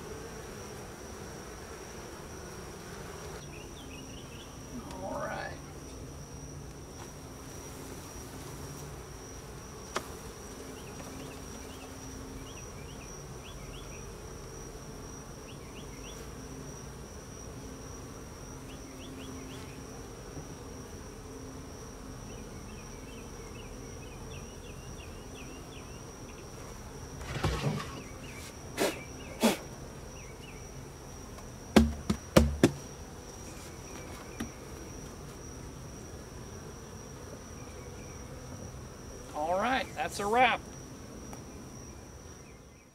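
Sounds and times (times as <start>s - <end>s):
bees buzzing: 0.0s - 42.9s
sharp knocks: 31.8s - 32.8s.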